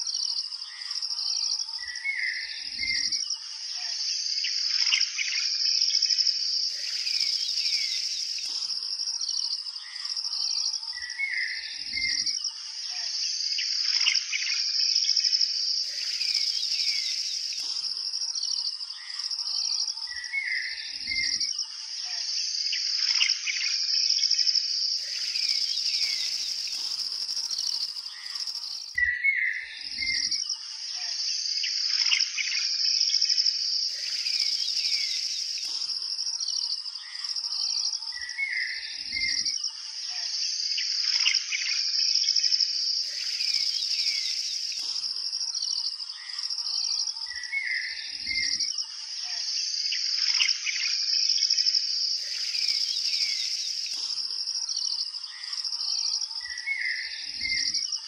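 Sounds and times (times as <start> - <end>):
high-pitched insect trill: 0.0 - 58.0
bird chirps and calls: 6.7 - 8.8, 15.8 - 21.4, 25.0 - 32.7, 33.9 - 37.2, 43.0 - 48.6, 52.2 - 57.8.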